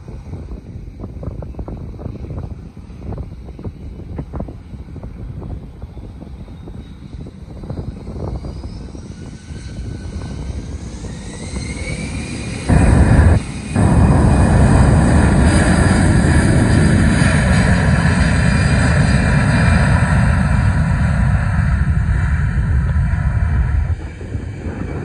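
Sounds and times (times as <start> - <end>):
jet engine takeoff roar: 0.0 - 25.0
jet engines spooling up: 6.0 - 25.0.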